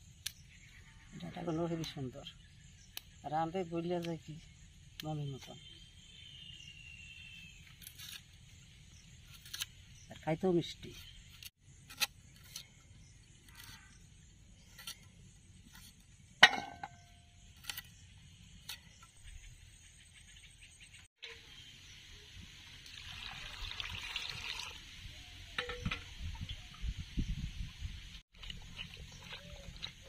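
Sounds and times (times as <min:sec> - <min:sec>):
water splashing into steel bowl: 0:22.8 - 0:24.8.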